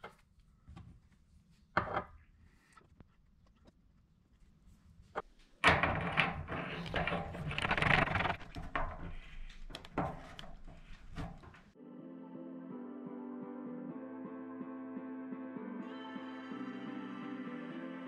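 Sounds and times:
rustling: 0:04.2 - 0:11.8.

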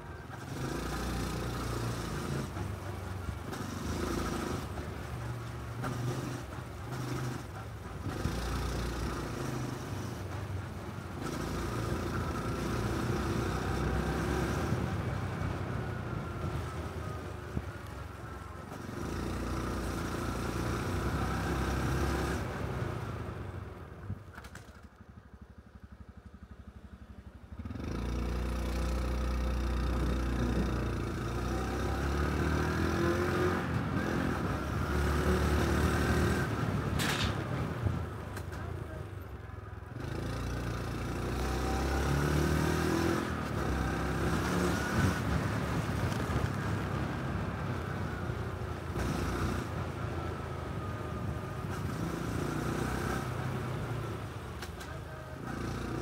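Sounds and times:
motorcycle engine running: 0:00.0 - 0:37.0.

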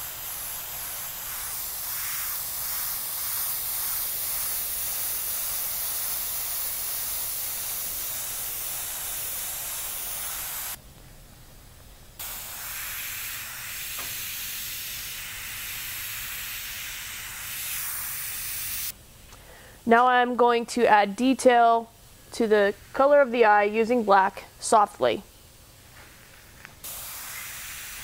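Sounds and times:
airbrush hissing: 0:00.0 - 0:10.8, 0:12.2 - 0:18.9, 0:26.0 - 0:28.0.

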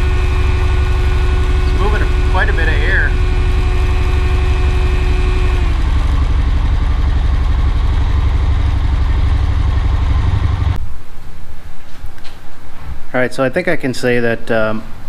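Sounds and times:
engine idling: 0:00.0 - 0:10.8
radiator fan running: 0:00.0 - 0:10.8.

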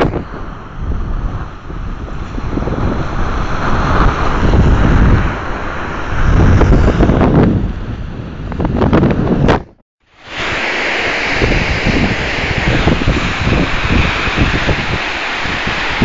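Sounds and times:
wind buffeting microphone: 0:00.0 - 0:16.0
water rushing down spillway: 0:10.1 - 0:16.0.

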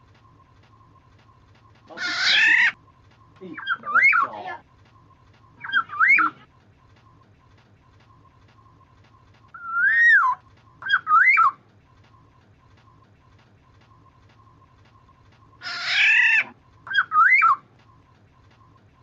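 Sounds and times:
bird fluty whistled phrases: 0:01.6 - 0:06.5, 0:09.5 - 0:11.6, 0:15.5 - 0:17.7
bird harsh nasal call: 0:01.9 - 0:02.8.

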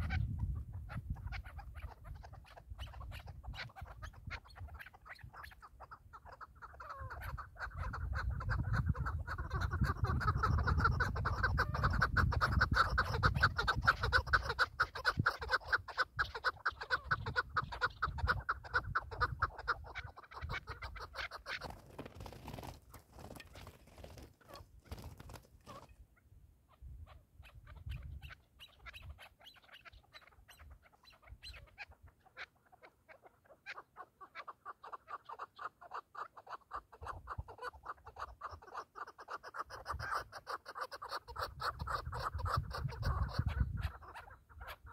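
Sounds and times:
wind rumble on microphone: 0:00.0 - 0:05.4, 0:07.0 - 0:15.5, 0:17.0 - 0:21.2, 0:26.8 - 0:28.3, 0:41.4 - 0:44.9
partridges chuckling calls: 0:00.0 - 0:26.0, 0:26.7 - 0:44.9.

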